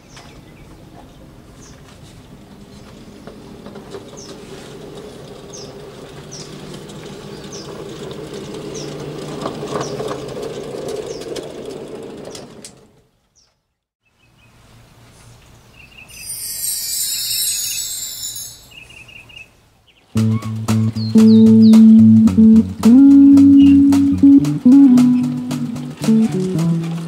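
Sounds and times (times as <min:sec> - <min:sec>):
wheels rolling on steel rail: 0:01.7 - 0:13.3.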